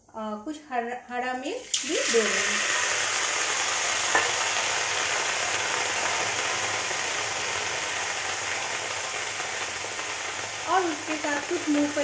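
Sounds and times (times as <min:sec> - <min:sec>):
vegetables sizzling in a pan: 0:01.2 - 0:12.0.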